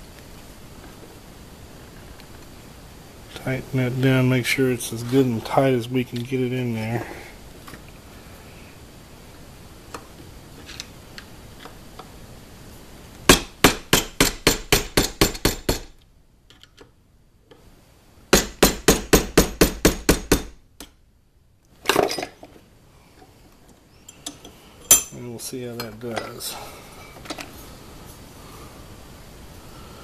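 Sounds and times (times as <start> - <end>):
hammer tapping metal punch: 13.3 - 15.9, 24.2 - 25.2.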